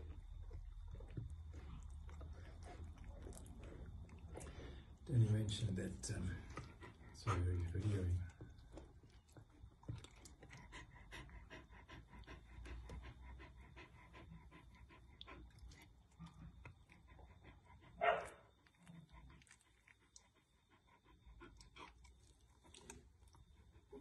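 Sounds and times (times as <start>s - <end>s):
puppy breathing quickly: 1.5s - 8.2s, 10.4s - 18.3s.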